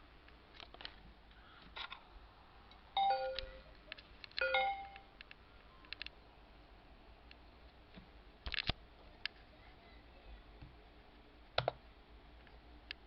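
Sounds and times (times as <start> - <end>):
two-note computer chime: 3.0 - 3.7, 4.4 - 5.0.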